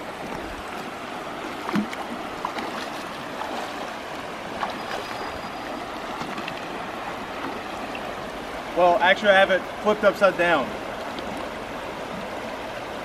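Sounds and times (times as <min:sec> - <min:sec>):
splashes of wading: 0:00.0 - 0:08.8, 0:10.6 - 0:13.0
water rushing over rocks: 0:00.0 - 0:13.0.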